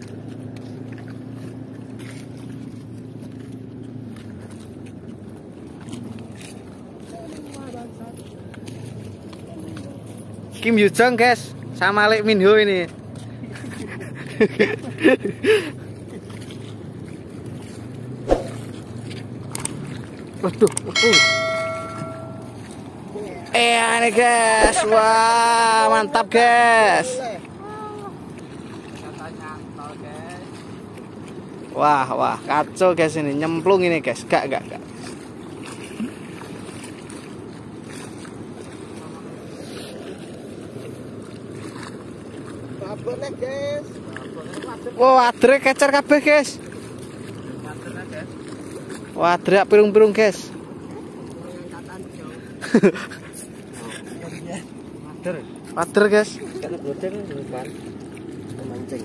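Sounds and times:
water rumbling: 0.0s - 59.0s
wind: 0.0s - 59.0s
wind on microphone: 18.2s - 18.8s.

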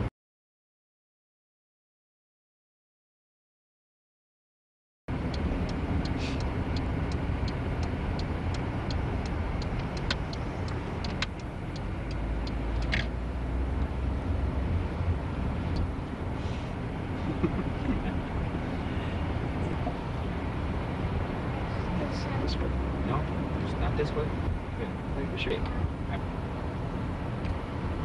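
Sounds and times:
car cabin rumble: 5.1s - 28.0s
light ticks: 5.3s - 13.1s.

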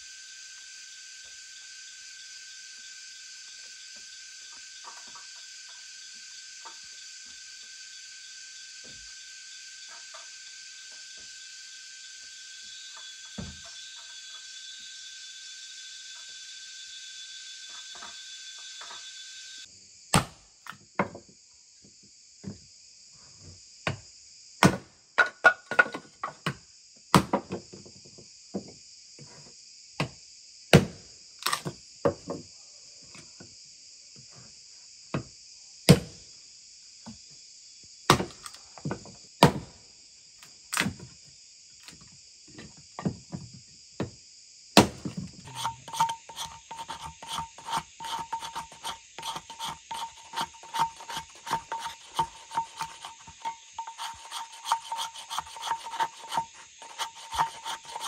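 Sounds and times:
insects chirring: 0.0s - 58.0s
hatchet chopping wood: 20.1s - 20.4s, 24.6s - 24.8s, 27.1s - 27.4s, 30.8s - 31.7s, 35.9s - 36.1s, 38.1s - 38.6s, 39.4s - 39.7s, 44.8s - 58.0s
knife shaving wood: 44.8s - 58.0s.

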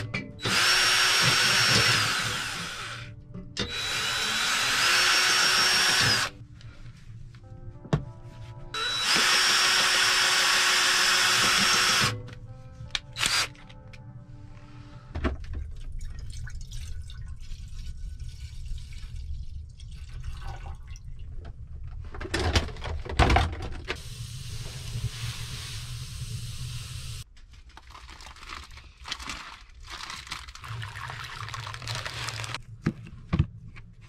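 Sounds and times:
cordless drill drilling into metal: 0.4s - 3.0s, 3.6s - 6.3s, 8.8s - 12.2s, 13.2s - 13.5s
water pouring into metal pot: 15.9s - 21.1s, 30.4s - 32.6s.

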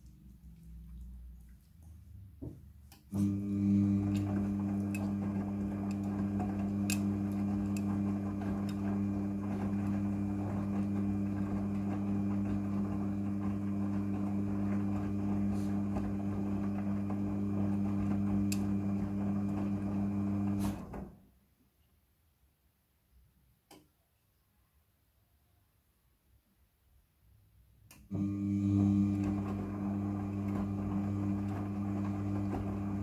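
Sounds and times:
washing machine drum motor hum: 2.4s - 21.1s, 28.1s - 33.0s.

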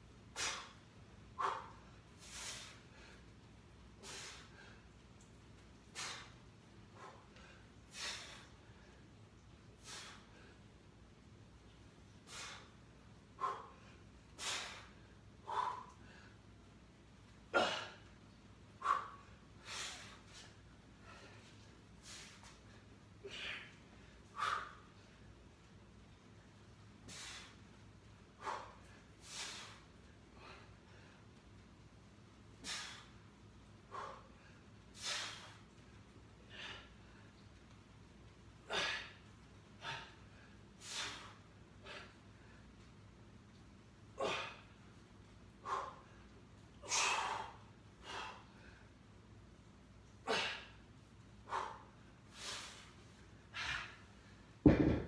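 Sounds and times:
man breathing forcefully: 0.3s - 3.3s, 4.0s - 4.9s, 5.9s - 9.0s, 9.7s - 10.6s, 12.2s - 16.4s, 18.8s - 22.5s, 28.3s - 31.2s, 32.6s - 33.1s, 33.8s - 35.6s, 38.7s - 42.5s, 45.6s - 48.9s, 51.4s - 55.0s
man breathing hard: 6.9s - 9.0s, 9.7s - 10.7s, 38.6s - 42.7s, 45.6s - 49.0s, 51.4s - 54.4s.

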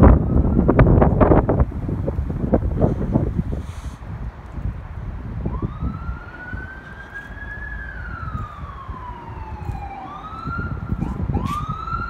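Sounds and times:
emergency siren wailing: 0.0s - 1.8s, 5.0s - 12.0s
wind buffeting microphone: 0.0s - 12.0s.

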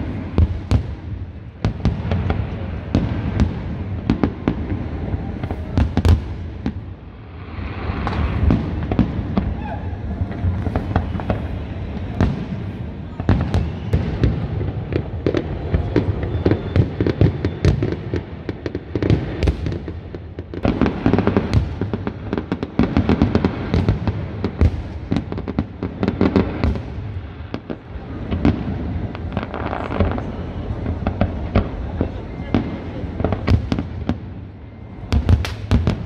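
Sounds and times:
firework bangs and crackles: 0.0s - 36.0s.

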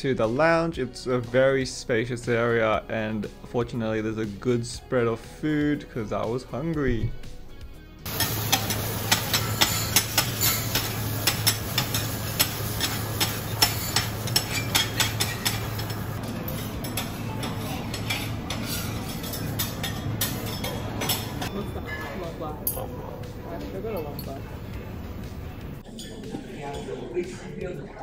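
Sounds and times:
metal spatula scraping griddle: 8.1s - 21.5s.

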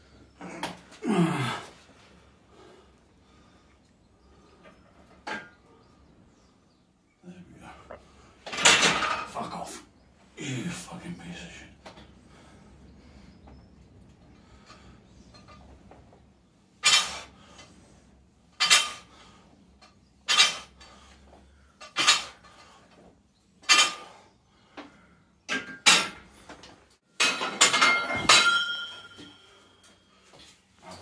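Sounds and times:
steel barbell clinking: 27.2s - 29.9s
metal clanks with ringing tone: 27.2s - 30.1s.

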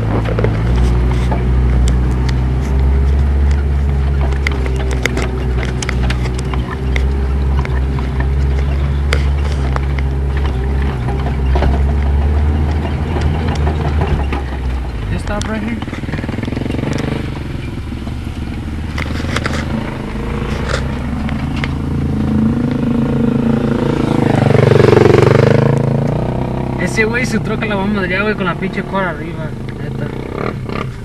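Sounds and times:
knocks and rattles: 0.0s - 22.0s
vehicle engine drone: 0.0s - 31.0s.

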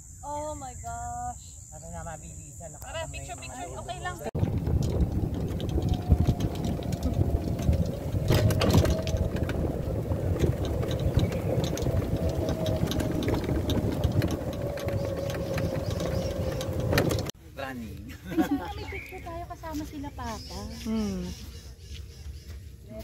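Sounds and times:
golf cart rumble and whine: 3.9s - 17.4s
cart body rattling and clicking: 4.0s - 17.4s.

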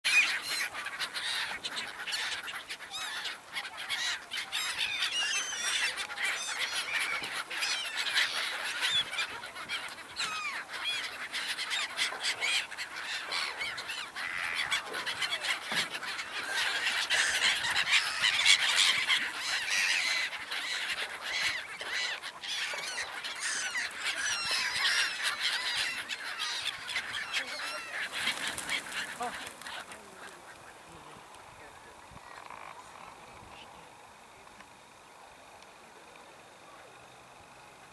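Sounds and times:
gulls calling: 0.0s - 35.4s.

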